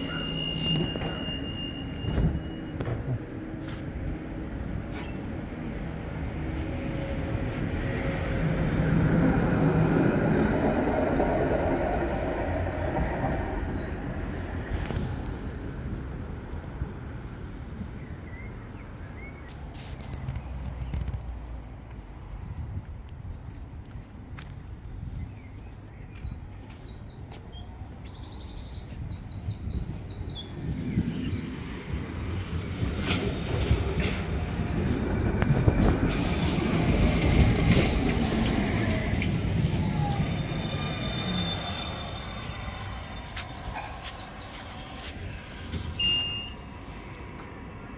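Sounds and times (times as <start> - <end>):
high wheel squeals: 0.0 - 2.8, 7.8 - 11.6, 39.7 - 43.9
tram wheels rumbling: 0.0 - 17.4, 19.5 - 47.9
songbird singing: 9.4 - 13.9, 25.1 - 31.6.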